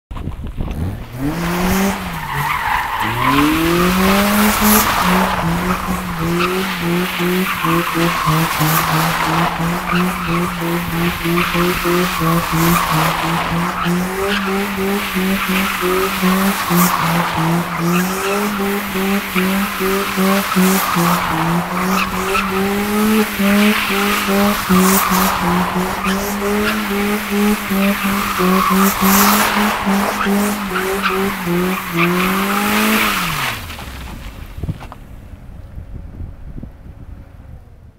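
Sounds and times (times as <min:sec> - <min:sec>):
car engine revving: 0:00.6 - 0:34.4
tyres squealing on pavement: 0:01.5 - 0:34.4.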